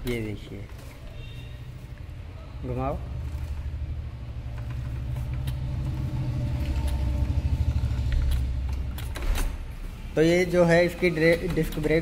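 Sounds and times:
motorcycle engine rumbling: 0:01.0 - 0:10.3.

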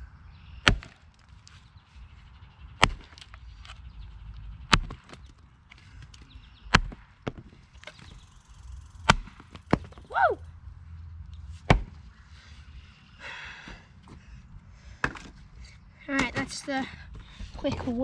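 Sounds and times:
axe chopping wood: 0:00.6 - 0:01.3, 0:02.8 - 0:03.4, 0:04.7 - 0:05.3, 0:06.7 - 0:08.1, 0:09.0 - 0:10.1, 0:11.6 - 0:12.0, 0:15.0 - 0:15.3, 0:16.1 - 0:16.6.

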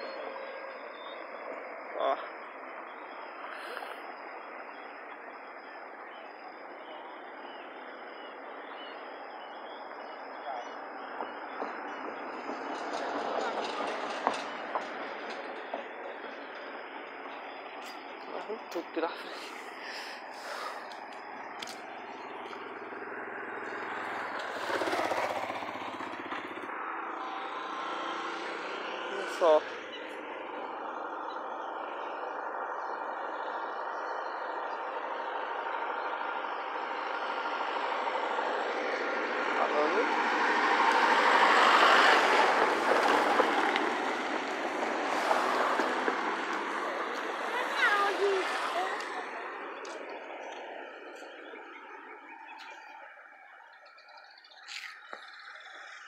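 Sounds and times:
small motorcycle passing: 0:21.6 - 0:52.8.

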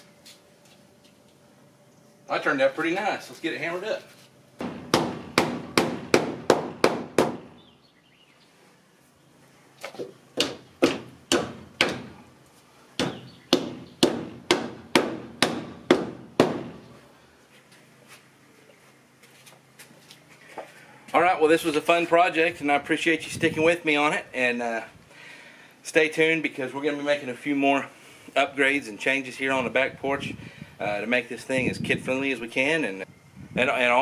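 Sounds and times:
hammer driving nails into wood: 0:04.6 - 0:07.4, 0:10.4 - 0:12.1, 0:13.0 - 0:16.8.

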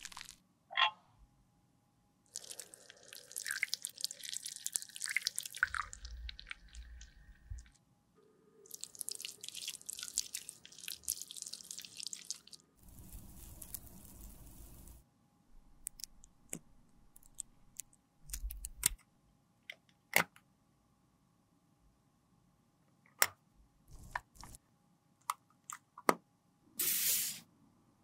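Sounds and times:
thick liquid pouring and dripping: 0:00.0 - 0:00.4, 0:02.3 - 0:07.8, 0:08.7 - 0:15.0.

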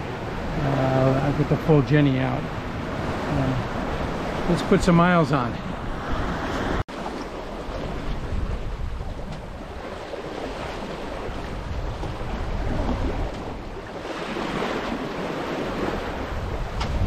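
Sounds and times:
water rushing past hull: 0:00.0 - 0:17.0
wind across microphone: 0:05.5 - 0:17.0.

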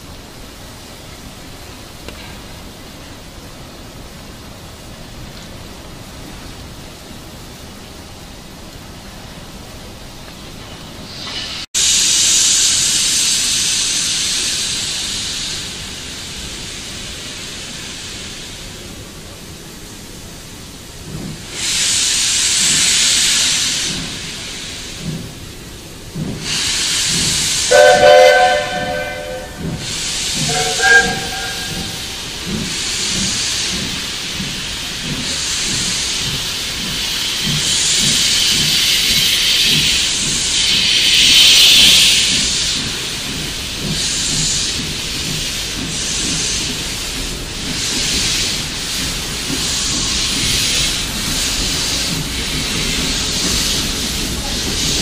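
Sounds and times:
steam locomotive hissing: 0:00.0 - 0:55.0
steam whistle blasts: 0:27.7 - 0:29.7, 0:30.3 - 0:32.0.

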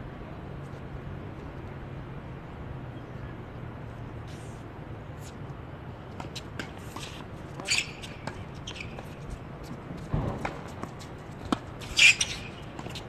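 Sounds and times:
tennis ball bouncing: 0:06.1 - 0:09.2, 0:10.0 - 0:13.0.

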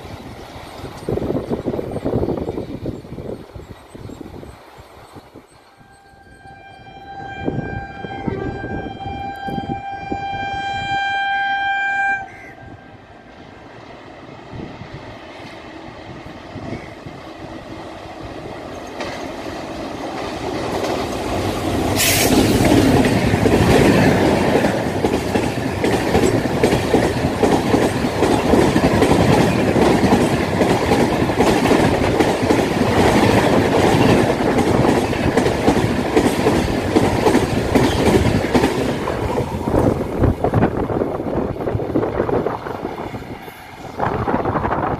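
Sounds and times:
express train rushing past: 0:00.0 - 0:44.9
electric locomotive horn: 0:05.7 - 0:13.3
wheels clicking over rail joints: 0:17.0 - 0:44.9.

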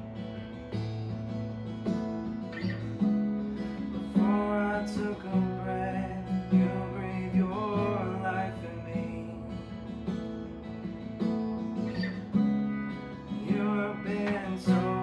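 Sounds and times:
acoustic guitar strumming: 0:00.0 - 0:15.0
man singing: 0:04.1 - 0:09.7, 0:13.3 - 0:15.0.

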